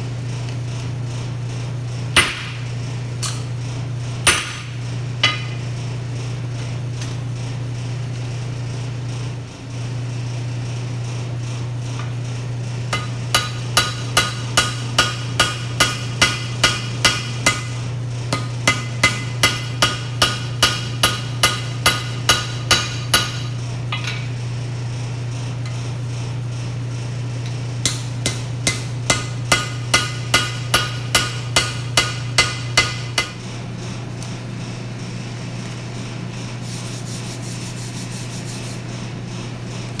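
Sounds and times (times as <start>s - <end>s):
forge blower hum: 0.0s - 40.0s
hammer ringing on anvil: 2.2s - 3.4s, 4.3s - 5.6s, 13.0s - 24.2s, 27.8s - 33.4s.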